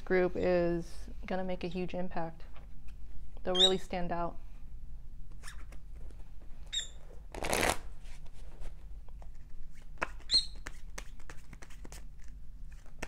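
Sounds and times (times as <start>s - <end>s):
parrot chirping: 6.7s - 7.0s, 10.3s - 10.6s
cards being shuffled: 7.3s - 13.0s.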